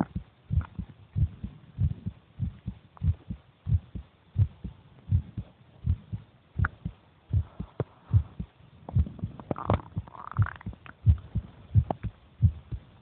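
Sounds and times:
heartbeat thumps: 0:00.0 - 0:13.0.

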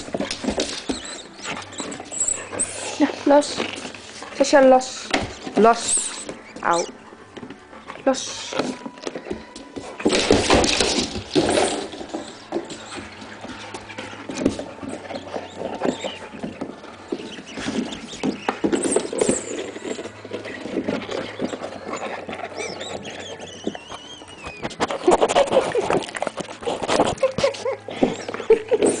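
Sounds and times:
dog claws clicking on floor: 0:00.0 - 0:07.6.

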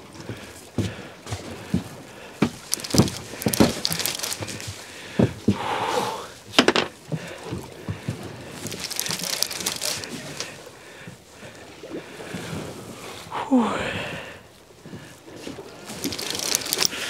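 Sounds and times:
waterproof clothing rustling: 0:01.4 - 0:05.6, 0:06.4 - 0:11.6, 0:15.3 - 0:17.0
knocks and clicks of fishing gear: 0:02.4 - 0:05.6, 0:06.5 - 0:10.6, 0:15.9 - 0:17.0.

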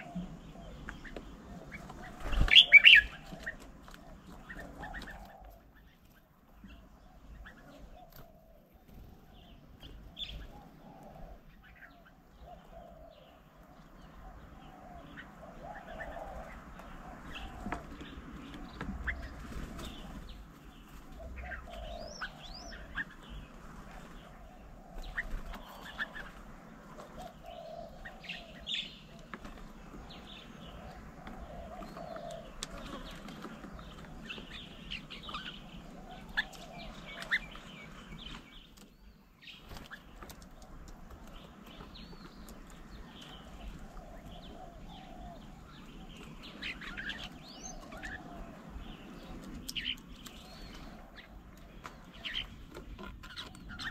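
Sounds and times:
birds chirping: 0:00.0 - 0:53.9
bird wing flaps: 0:02.0 - 0:03.6.

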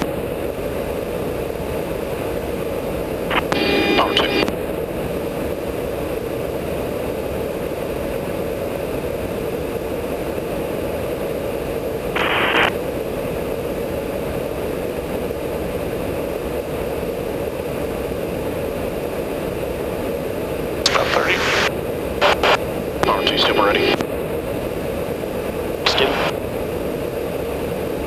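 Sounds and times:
aircraft cabin airflow drone: 0:00.0 - 0:28.0
radio squelch hiss: 0:03.3 - 0:04.5, 0:12.2 - 0:12.7, 0:20.9 - 0:24.0, 0:25.9 - 0:26.3.

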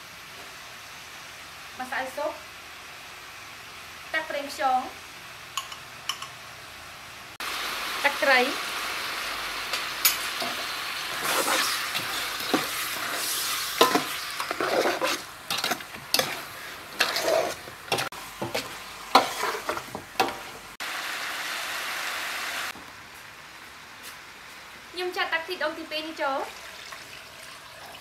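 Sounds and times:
meat sizzling in a pot: 0:00.1 - 0:22.8, 0:26.0 - 0:28.0
metal ladle scraping a pot: 0:10.4 - 0:20.5.

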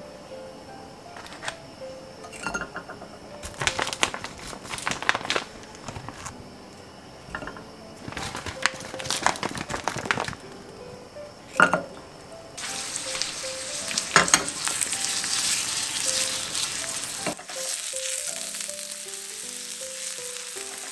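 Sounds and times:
patties laid into hot oil: 0:12.6 - 0:18.7.

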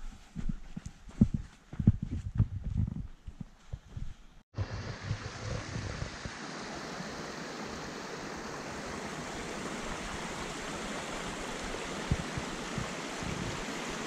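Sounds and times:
soft low thumps: 0:00.0 - 0:06.1
stream water rushing: 0:04.6 - 0:14.0.

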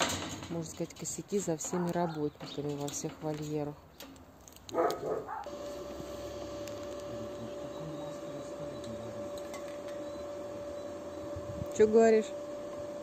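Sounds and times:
constant high whine: 0:04.7 - 0:13.0.

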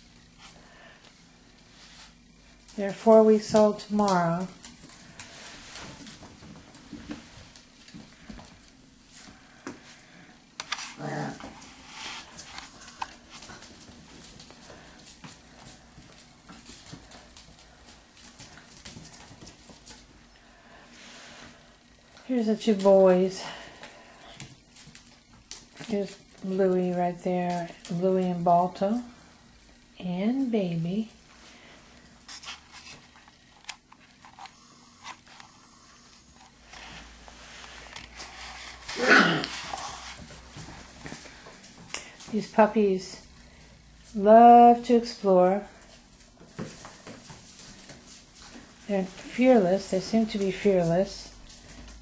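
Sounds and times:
claws clicking on tiled floor: 0:12.3 - 0:20.2.

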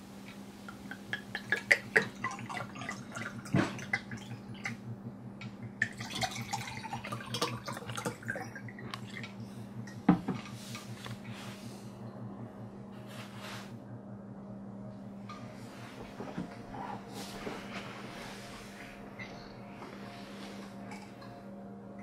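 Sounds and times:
low hum: 0:00.0 - 0:22.0
liquid glugging into glasses: 0:01.1 - 0:04.8, 0:05.8 - 0:09.4.

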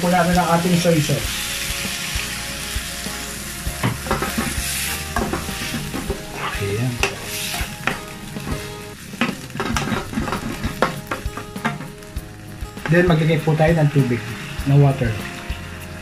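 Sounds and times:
food sizzling in a frying pan: 0:00.0 - 0:16.0
wooden spatula scraping a pan: 0:03.8 - 0:08.8, 0:09.6 - 0:11.0.

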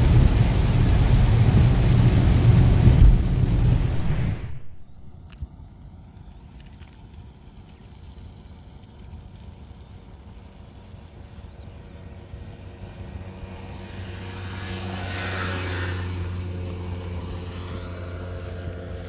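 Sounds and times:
tyre hiss on wet road: 0:00.0 - 0:04.6, 0:13.9 - 0:19.0
low rumble of wind: 0:00.0 - 0:19.0
motorbike engine hum: 0:00.0 - 0:19.0.

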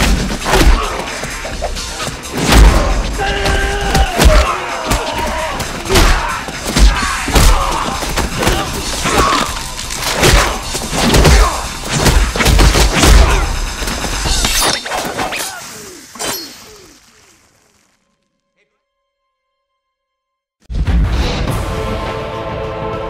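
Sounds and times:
action music score: 0:00.0 - 0:14.6, 0:20.7 - 0:23.0
punch and kick impacts: 0:02.3 - 0:09.4, 0:10.0 - 0:14.0.

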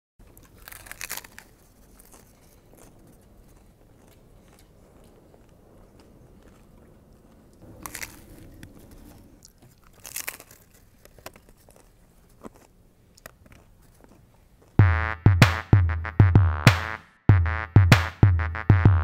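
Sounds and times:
crunchy taco shells being chewed: 0:00.2 - 0:14.8.

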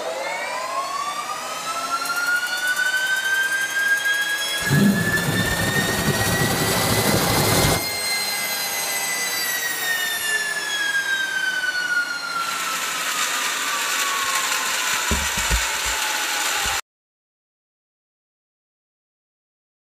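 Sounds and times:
turbine whine winding down: 0:00.0 - 0:16.8
gas turbine engine roar: 0:04.6 - 0:08.0
low thumps: 0:15.1 - 0:16.0.

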